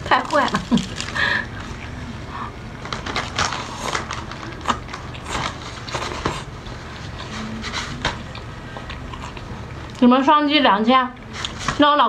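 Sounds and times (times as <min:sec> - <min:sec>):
person chewing with wet smacks: 0:08.0 - 0:10.0.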